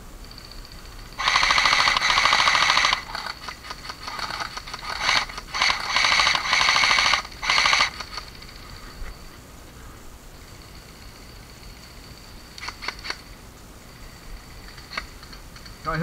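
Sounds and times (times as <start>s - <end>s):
airsoft rifle firing bursts: 1.2s - 8.5s.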